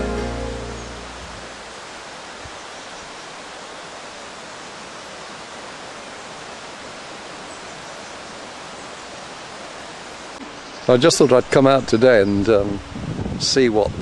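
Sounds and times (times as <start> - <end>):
river water rushing: 0.0 - 10.8.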